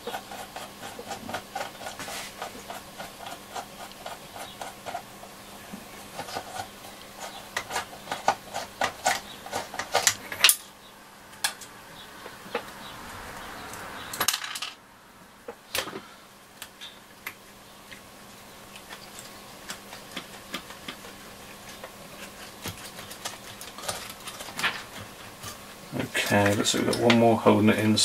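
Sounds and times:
faint steady hiss: 0:09.2 - 0:28.0.

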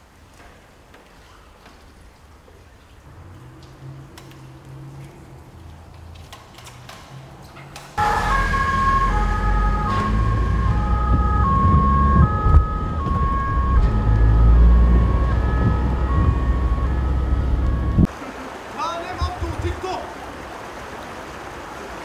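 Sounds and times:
road and engine rumble: 0:03.0 - 0:18.8
two-tone emergency siren: 0:08.0 - 0:18.1.

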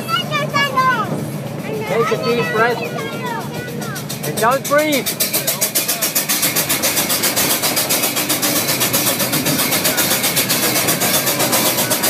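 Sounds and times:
steam locomotive chuffing: 0:00.0 - 0:12.0.

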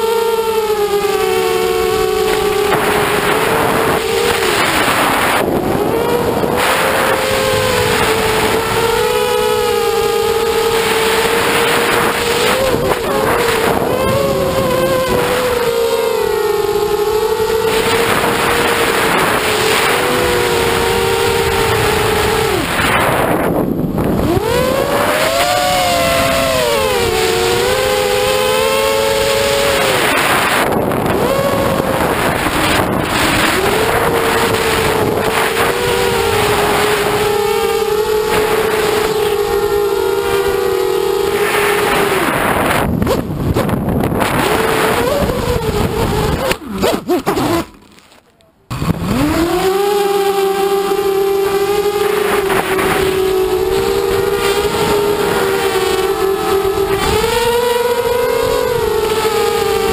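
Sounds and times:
wind rushing over microphone: 0:00.0 - 0:47.8, 0:48.7 - 0:59.9
drone motors whining: 0:00.0 - 0:59.9.

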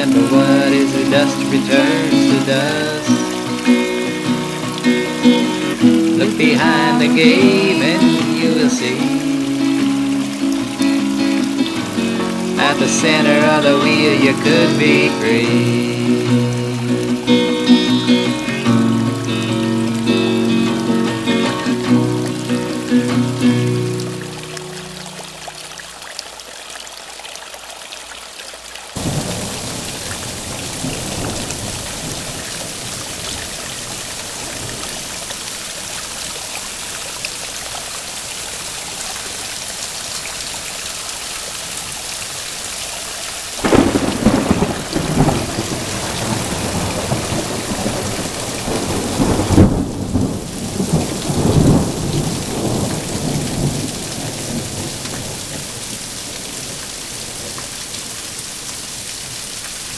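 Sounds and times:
steady rain: 0:00.0 - 0:59.9
rolling thunder: 0:29.0 - 0:34.9, 0:43.6 - 0:55.9.

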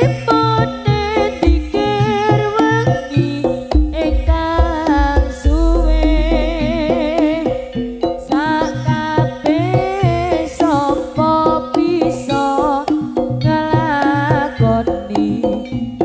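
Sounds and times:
wavering melody: 0:00.0 - 0:16.0
steady drumming: 0:00.9 - 0:10.9.

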